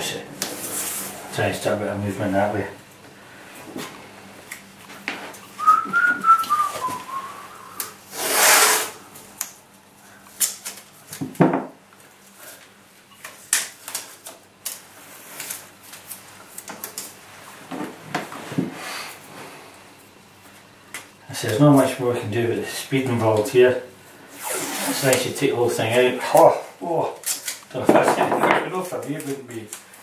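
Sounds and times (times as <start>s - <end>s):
person whistling a tune: 5.6s - 7.9s
masking tape pulled off roll: 7.8s - 9.0s, 24.4s - 25.2s.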